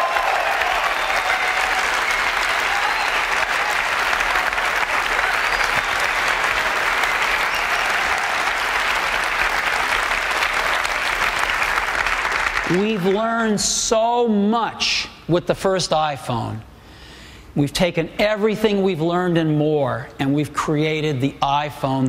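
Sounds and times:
large audience applauding: 0.0 - 13.4.

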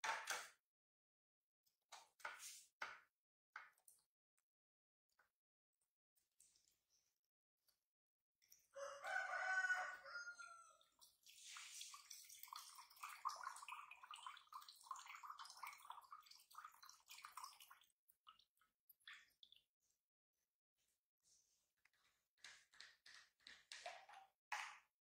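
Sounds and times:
water pouring into a bowl: 8.6 - 19.7.

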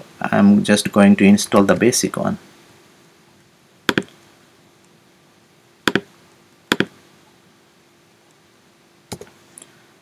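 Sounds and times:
mouse and keyboard clicks: 3.9 - 4.2, 6.7 - 6.9.

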